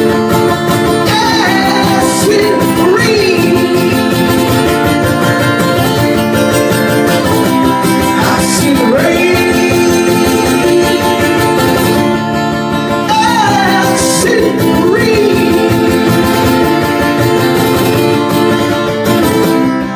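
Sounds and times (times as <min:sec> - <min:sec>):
acoustic guitar strummed: 0:00.0 - 0:19.9
man singing into a microphone: 0:00.8 - 0:05.5, 0:07.8 - 0:12.2, 0:12.9 - 0:17.5.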